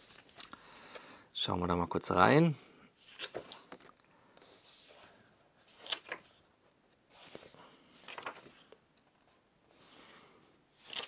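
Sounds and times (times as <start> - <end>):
paper pages rustling: 0.0 - 0.6, 3.0 - 11.0.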